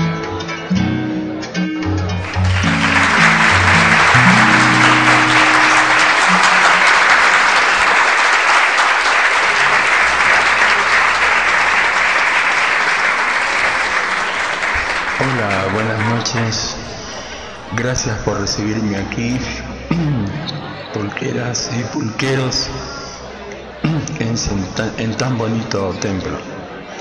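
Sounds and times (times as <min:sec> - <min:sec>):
acoustic guitar chords ringing: 0:00.0 - 0:07.9
audience applauding loudly: 0:02.2 - 0:19.9.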